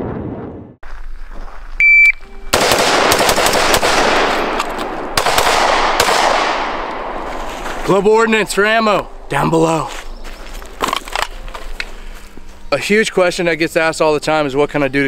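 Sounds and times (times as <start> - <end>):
short high electronic beep: 1.8 - 2.5
pistol shots echoing: 2.5 - 7.3.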